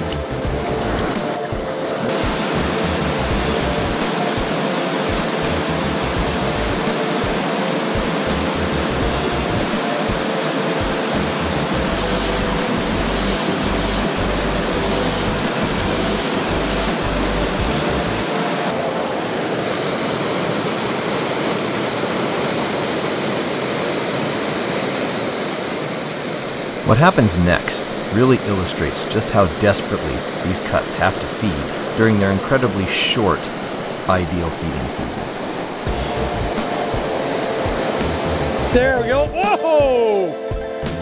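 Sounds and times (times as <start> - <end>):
stream rushing over rocks: 0.8 - 5.7, 26.5 - 40.2.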